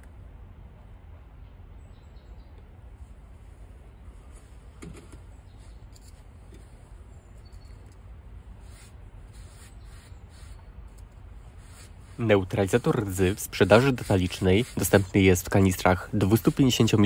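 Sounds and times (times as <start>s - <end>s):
steady low hum: 0.0s - 17.0s
paintbrush scratching on steel: 8.6s - 17.0s.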